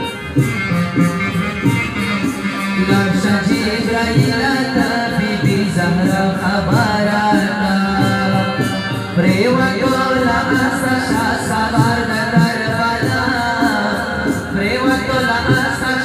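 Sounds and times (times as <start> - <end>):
percussion beat: 0.0 - 16.0.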